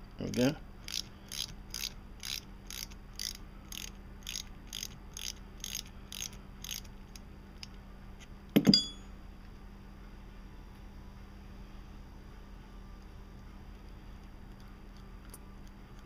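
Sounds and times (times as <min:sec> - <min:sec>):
ratchet wrench clicking: 0:00.3 - 0:06.9
sharp metallic clank: 0:08.6 - 0:09.1.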